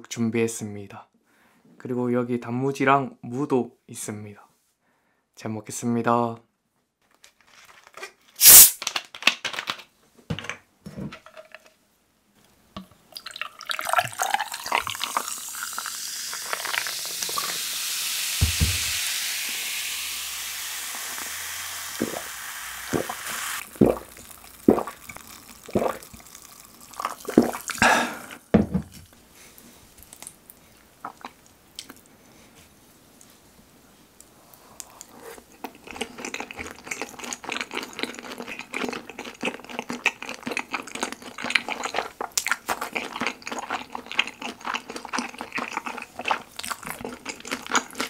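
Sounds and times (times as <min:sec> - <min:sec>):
cola fizzing as poured: 0:08.4 - 0:08.8, 0:13.1 - 0:28.0
glass mug knocks: 0:18.4 - 0:18.9
swallowing: 0:23.0 - 0:28.4.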